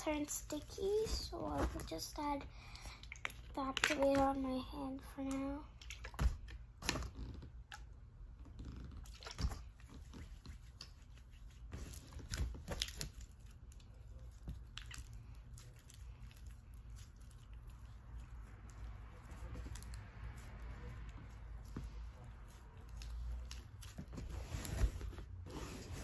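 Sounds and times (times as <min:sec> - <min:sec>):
slime squelching and clicking: 0:02.9 - 0:08.0, 0:09.0 - 0:24.1.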